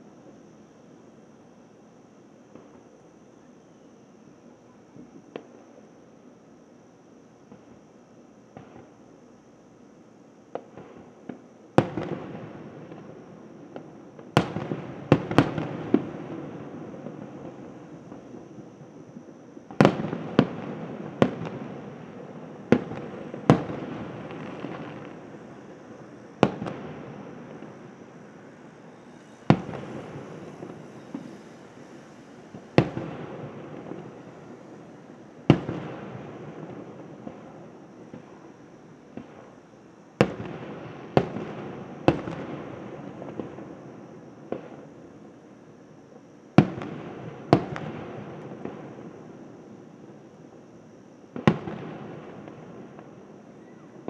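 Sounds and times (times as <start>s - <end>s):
fireworks booming: 10.5s - 39.6s, 40.2s - 45.1s, 46.6s - 49.5s, 51.3s - 54.0s
firework shells booming: 22.5s - 38.3s.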